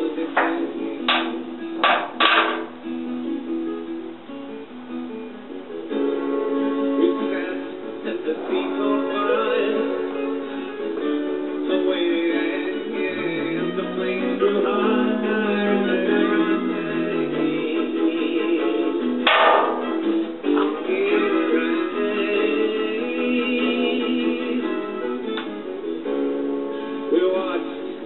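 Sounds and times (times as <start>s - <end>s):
music with plucked strings: 0.0s - 28.0s
short loud hits: 19.3s - 20.1s.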